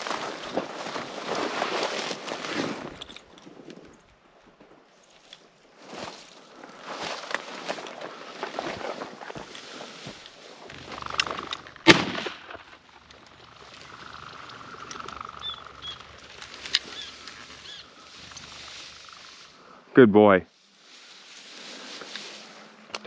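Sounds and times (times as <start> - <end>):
footsteps crunching through brush: 0.0 - 19.6, 20.5 - 23.0
shotgun shot: 11.8 - 12.6.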